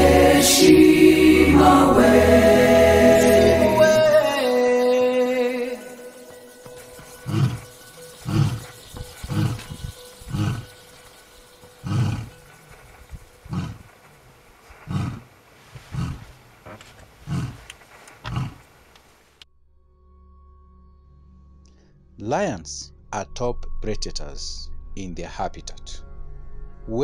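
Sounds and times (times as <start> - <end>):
lion roaring: 7.1 - 11.0, 11.8 - 12.8, 13.4 - 14.0, 14.7 - 18.7.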